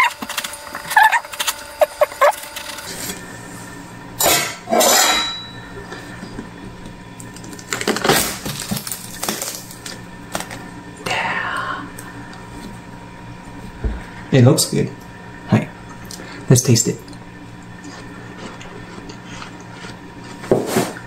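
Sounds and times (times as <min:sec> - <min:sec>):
watermelon splitting open: 0:07.8 - 0:10.6.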